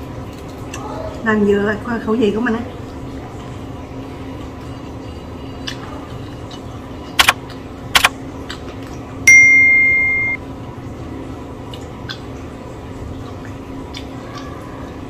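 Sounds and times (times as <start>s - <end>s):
bright bell ding: 9.3s - 10.4s.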